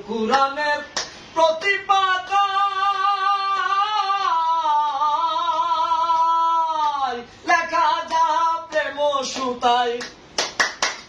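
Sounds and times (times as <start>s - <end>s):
man singing unaccompanied: 0.0s - 10.2s.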